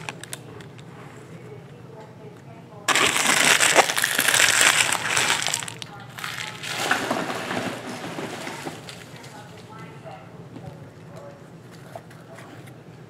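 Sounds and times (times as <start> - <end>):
plastic wrapper crinkling: 0.0 - 0.9, 2.9 - 9.6.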